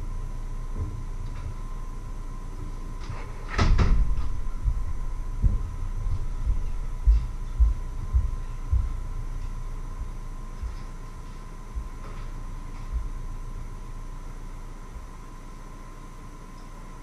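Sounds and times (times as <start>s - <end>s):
faint steady hum: 0.0s - 17.0s
dull low thumps: 3.7s - 11.0s, 11.6s - 13.5s.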